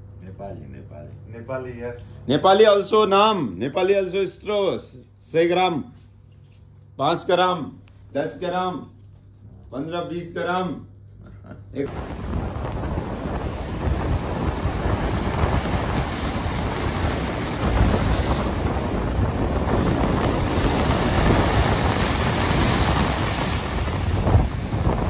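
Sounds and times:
wind buffeting microphone: 0:11.9 - 0:25.0.

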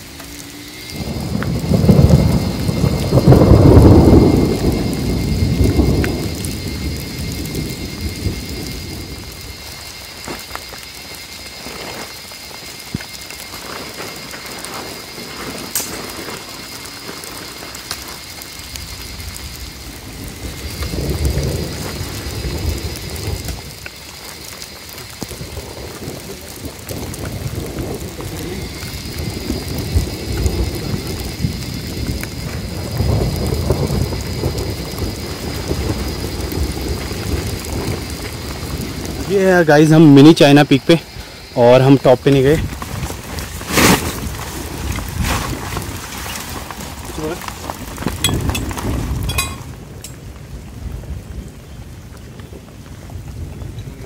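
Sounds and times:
rolling thunder: 0:00.0 - 0:09.8, 0:18.9 - 0:23.8, 0:25.2 - 0:39.8
steady rain: 0:00.0 - 0:54.0.

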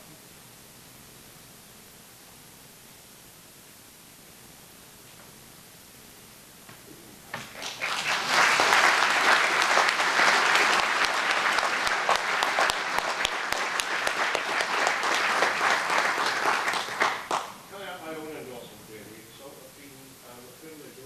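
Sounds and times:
audience applauding: 0:07.3 - 0:17.6.

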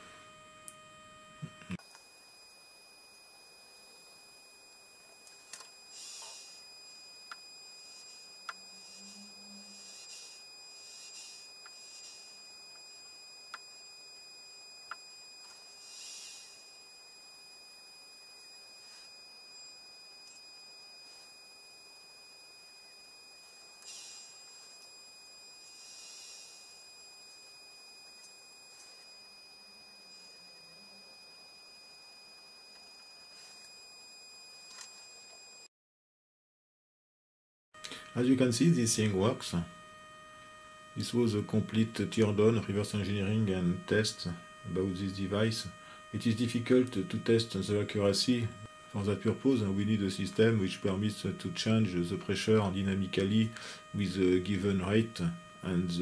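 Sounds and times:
high-pitched electronic whine: 0:00.0 - 0:35.7, 0:37.8 - 0:56.0
soft hisses: 0:05.3 - 0:06.6.

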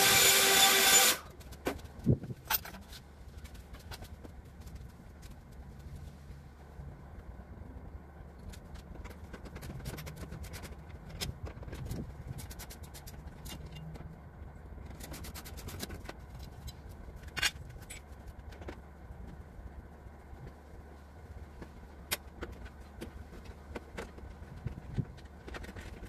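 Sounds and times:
steady low rumble: 0:15.7 - 0:26.0.

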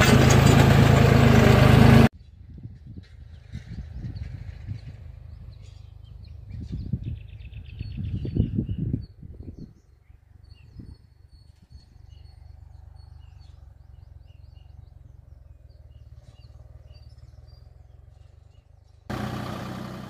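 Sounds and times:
tractor diesel engine running: 0:00.0 - 0:02.1, 0:11.3 - 0:20.0
small birds chirping: 0:02.2 - 0:19.1.

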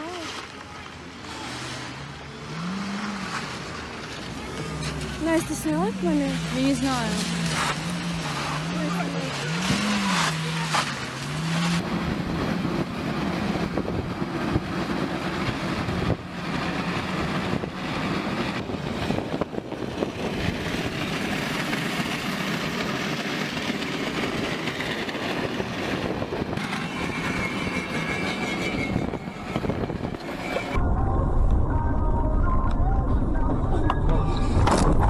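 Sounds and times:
metal scraping on asphalt: 0:00.0 - 0:11.8, 0:20.4 - 0:30.8
low engine drone: 0:00.0 - 0:35.0.

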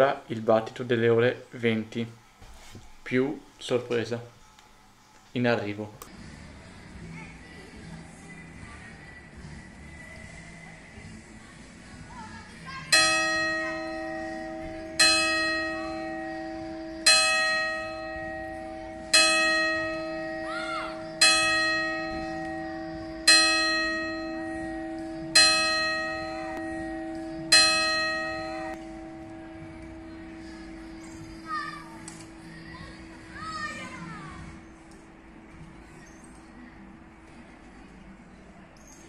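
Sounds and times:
church bell striking: 0:12.9 - 0:32.1.

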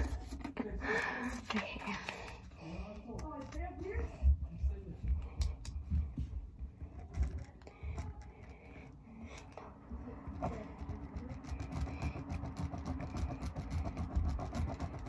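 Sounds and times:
pen scratching on paper: 0:00.0 - 0:00.6, 0:10.3 - 0:15.0.

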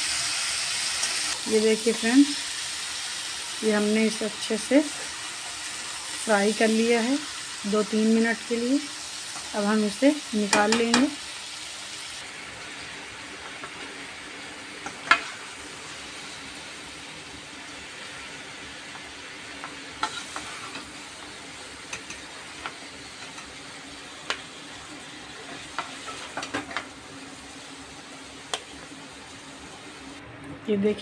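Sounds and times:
food sizzling in oil: 0:00.0 - 0:30.2
metal spatula scraping pan: 0:20.0 - 0:20.9.

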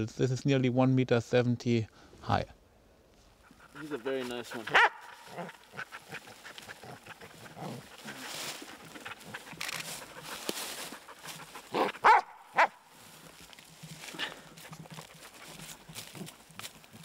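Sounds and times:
dog yelping: 0:03.4 - 0:12.8
dry leaves rustling: 0:03.7 - 0:17.0.

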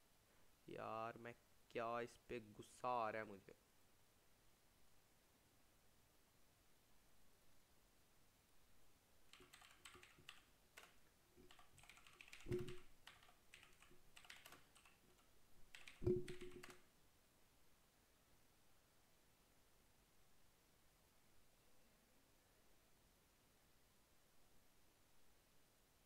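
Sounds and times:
computer keyboard typing: 0:09.3 - 0:16.9.

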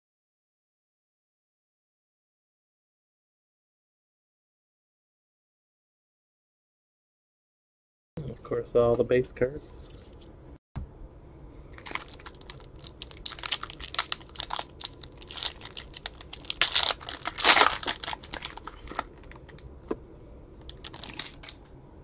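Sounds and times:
foil wrapper crinkling and tearing: 0:11.8 - 0:19.6, 0:20.6 - 0:21.6.

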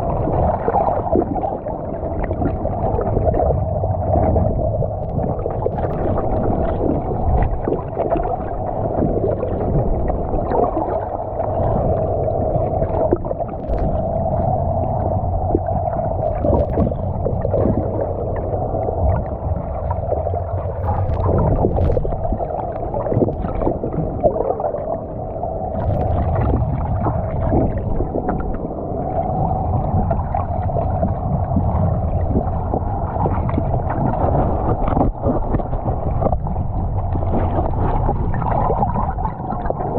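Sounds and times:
steady hum: 0:00.0 - 0:39.9
underwater rumble of moving water: 0:00.0 - 0:39.9.

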